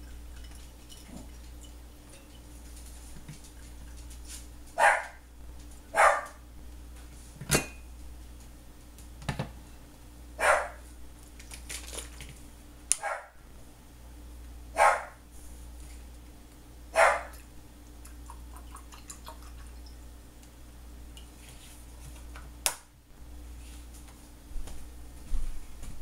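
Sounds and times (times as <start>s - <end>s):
dog barking: 4.8s - 5.2s, 6.0s - 6.4s, 10.4s - 10.8s, 13.0s - 13.4s, 14.8s - 15.2s, 16.9s - 17.4s.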